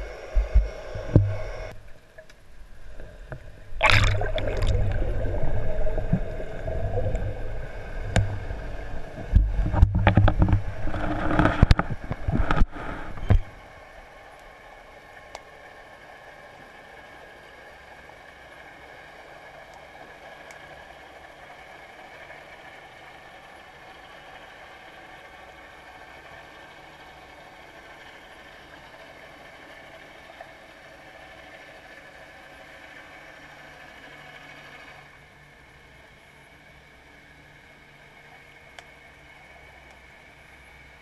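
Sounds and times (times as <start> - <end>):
underwater hiss: 0.0 - 1.7
low hum: 0.0 - 24.9
faint clicks: 38.3 - 39.0.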